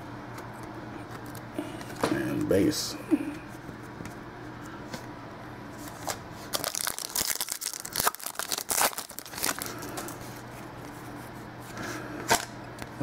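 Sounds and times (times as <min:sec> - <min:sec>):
wrapper tearing and crinkling: 0:06.0 - 0:10.1.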